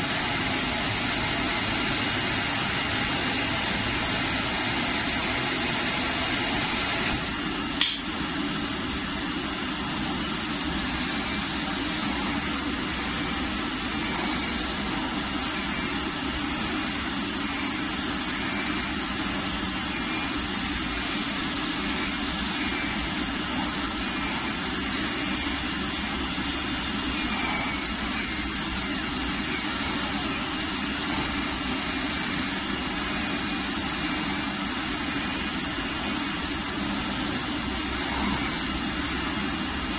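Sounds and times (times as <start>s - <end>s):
cutting machine whirring: 10.1s - 39.9s.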